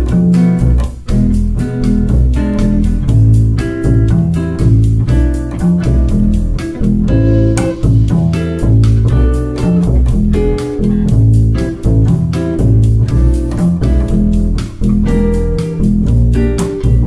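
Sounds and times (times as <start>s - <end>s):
double bass plucked pizzicato: 0.0s - 17.0s
higher plucked accompaniment: 0.0s - 17.0s.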